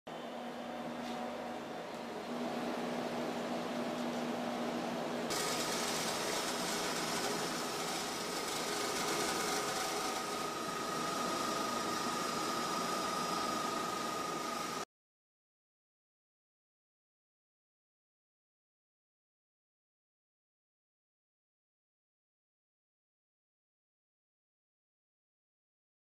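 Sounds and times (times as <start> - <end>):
machine hum and hiss: 0.1 - 14.8
steady machine whine: 0.1 - 14.9.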